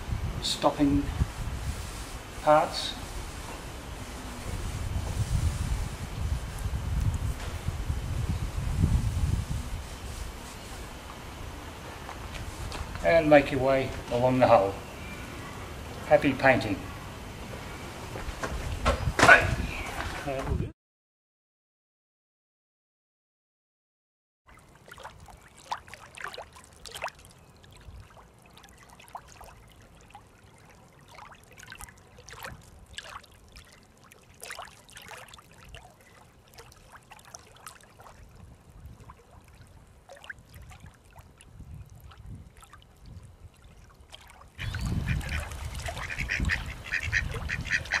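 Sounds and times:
short bird calls: 44.6s - 48.0s.

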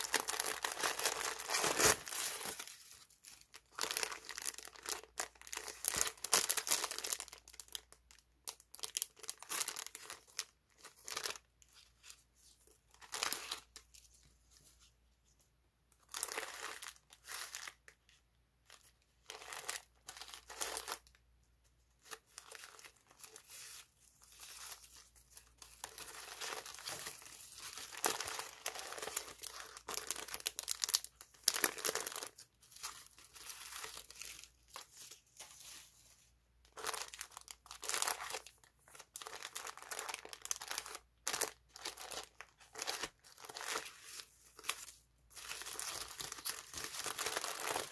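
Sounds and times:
packing paper rustling: 0.0s - 7.8s, 22.0s - 47.9s
cellophane crinkling: 0.0s - 14.1s, 21.9s - 36.0s, 36.7s - 47.9s.

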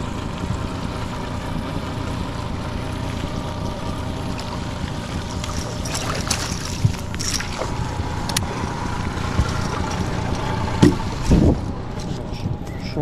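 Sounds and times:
outboard motor running: 0.0s - 13.0s
knocks in a boat: 5.5s - 7.7s, 10.7s - 11.6s
wind on microphone: 10.8s - 12.7s.

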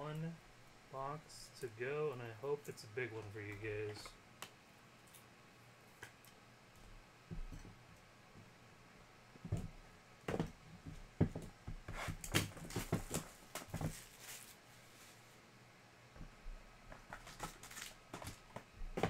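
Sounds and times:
cardboard scraping rustles: 11.9s - 15.3s.

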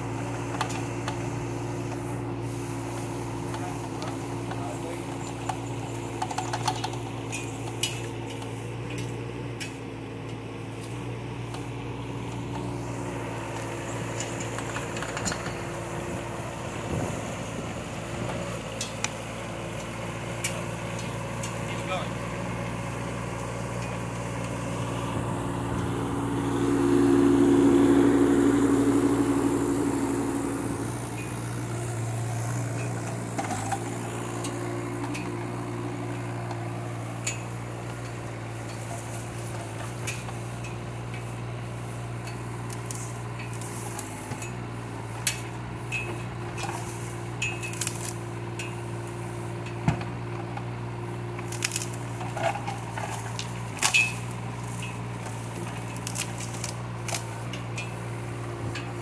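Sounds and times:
excavator diesel engine running: 0.0s - 59.0s
bush snapping and cracking: 47.7s - 48.2s, 51.4s - 52.0s, 55.9s - 57.3s.

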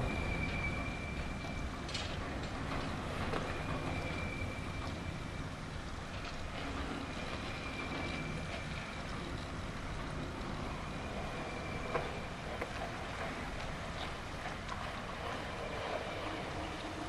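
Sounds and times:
faint high squeal: 0.0s - 1.8s, 3.2s - 5.6s, 6.6s - 9.2s, 10.6s - 13.5s
winch machinery running: 0.0s - 17.0s.

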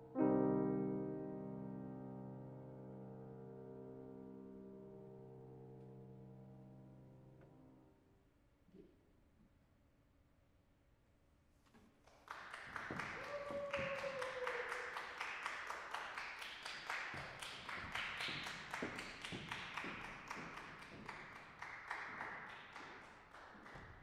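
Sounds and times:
audience applause: 12.2s - 24.0s.

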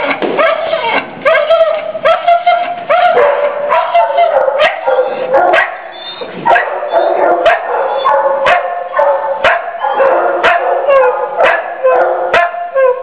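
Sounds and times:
dog whining and howling: 0.4s - 13.0s
dog barking sharply: 3.2s - 5.8s, 6.5s - 10.8s.

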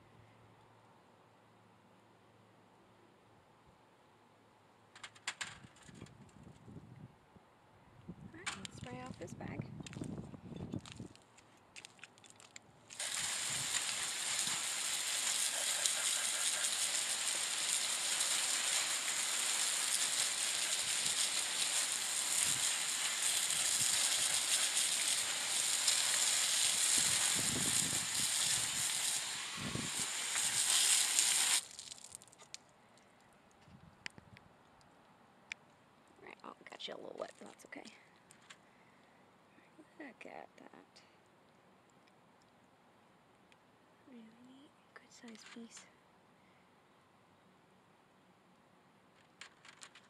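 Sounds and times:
hose spray on stone and mesh: 12.9s - 32.4s.

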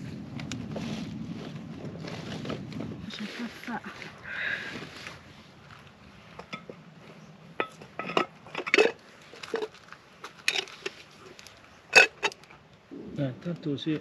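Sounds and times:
cups and containers clinking: 7.6s - 11.0s.

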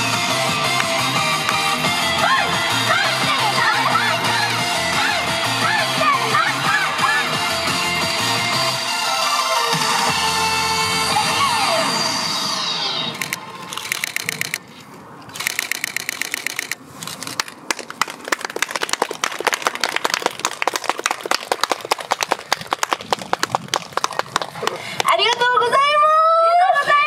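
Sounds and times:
audience clapping: 17.7s - 25.1s.

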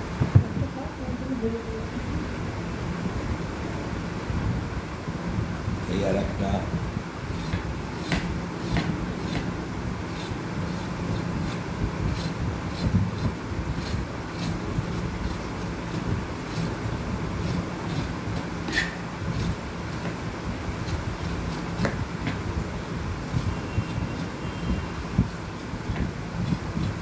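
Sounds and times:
steady low hum: 0.0s - 27.0s
knife scraping vegetables: 7.3s - 9.5s, 10.1s - 16.8s, 17.4s - 20.0s.

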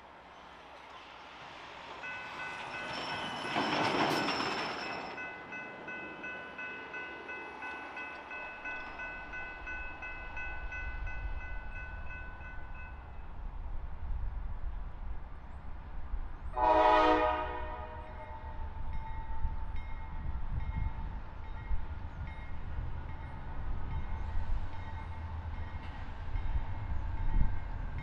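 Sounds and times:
freight train rumble: 0.0s - 28.0s
crossing bell ringing: 2.0s - 13.3s, 18.0s - 28.0s.

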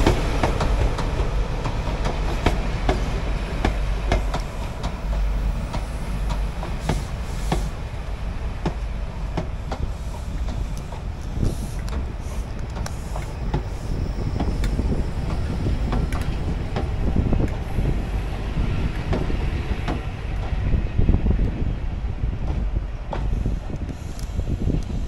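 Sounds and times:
train coaches rumbling past: 0.0s - 25.0s
wheels clicking over rail joints: 8.6s - 20.6s.

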